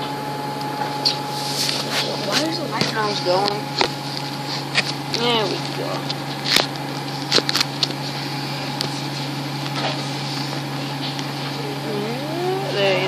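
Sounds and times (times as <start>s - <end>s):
coach engine drone: 11.0s - 13.0s.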